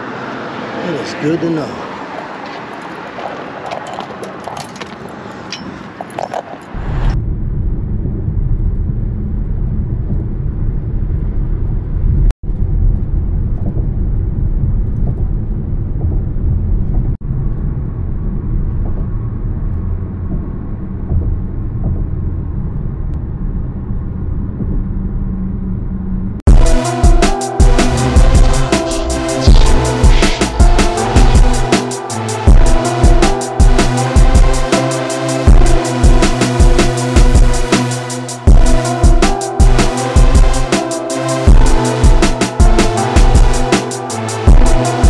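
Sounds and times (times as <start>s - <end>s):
road and engine rumble in car: 0.0s - 31.7s
outdoor ambience: 0.0s - 45.0s.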